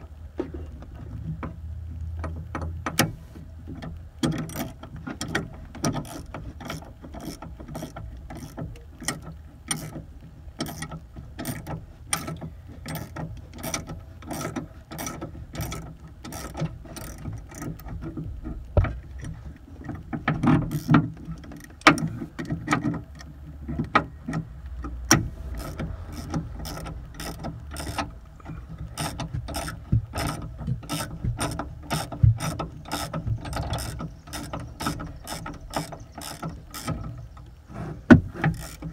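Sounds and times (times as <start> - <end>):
ratcheting wrench clicking: 4.2 - 10.0, 10.6 - 18.0, 20.4 - 23.3, 24.8 - 28.1, 28.7 - 37.2, 38.4 - 38.9.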